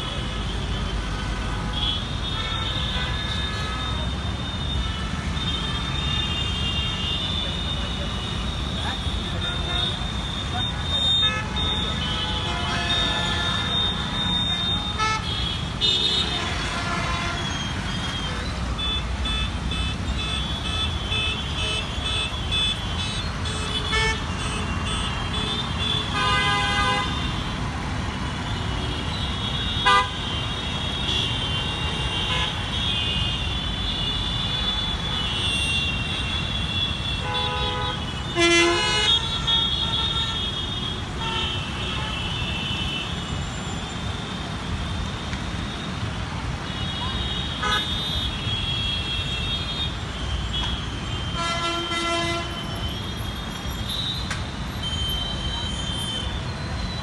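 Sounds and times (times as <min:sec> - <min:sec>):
road traffic rumble: 0:00.0 - 0:57.0
car horns beeping: 0:09.3 - 0:27.4, 0:28.4 - 0:43.3, 0:46.7 - 0:57.0.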